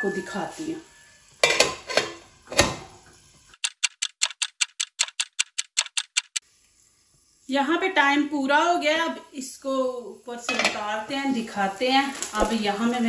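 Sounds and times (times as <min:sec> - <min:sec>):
metal lid clanking on a pan: 0:01.4 - 0:02.9, 0:10.5 - 0:10.9.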